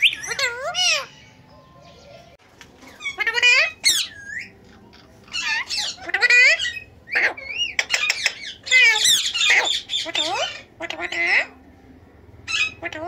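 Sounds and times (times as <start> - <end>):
parakeets calling harshly: 0.0 - 1.4, 2.8 - 11.6, 12.4 - 13.0.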